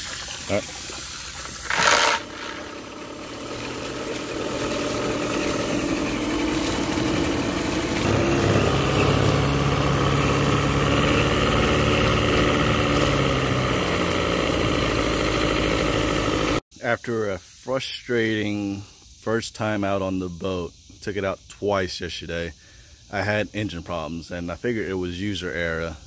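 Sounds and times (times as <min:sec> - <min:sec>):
propeller churning water: 0:00.0 - 0:16.6
outboard engine running: 0:01.6 - 0:16.6.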